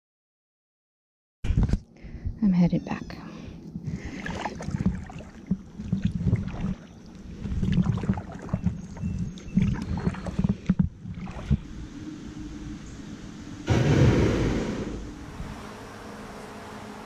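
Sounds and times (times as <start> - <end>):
water dripping: 3.6 - 11.7
paddle splashing into water: 4.2 - 6.9, 7.6 - 8.8, 9.6 - 11.6.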